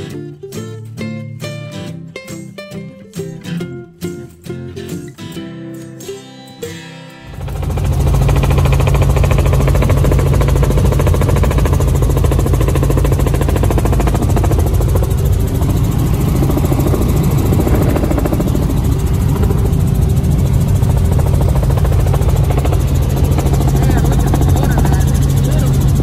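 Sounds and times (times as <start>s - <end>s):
helicopter engine and rotor drone: 7.2s - 26.0s
rotor blades beating: 7.2s - 26.0s.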